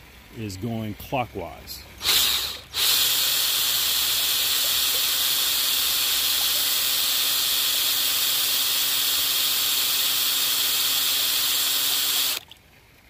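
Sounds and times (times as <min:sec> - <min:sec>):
water jetting from pump: 0:01.9 - 0:12.6
electric drill humming: 0:02.0 - 0:12.4.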